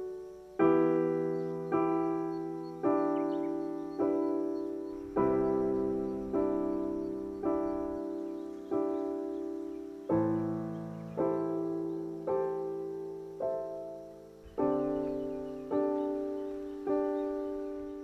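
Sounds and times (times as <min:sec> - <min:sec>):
slow piano chords: 0:00.0 - 0:18.0.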